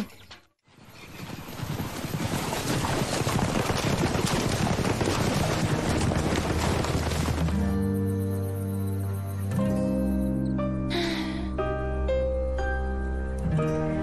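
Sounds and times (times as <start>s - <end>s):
horses galloping on wet sand: 0.8s - 8.0s
music: 5.0s - 14.0s.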